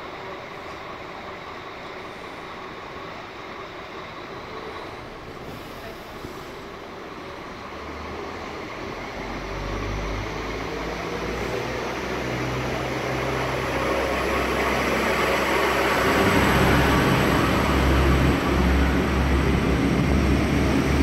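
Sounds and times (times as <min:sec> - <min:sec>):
diesel train engines humming: 0:00.0 - 0:21.0.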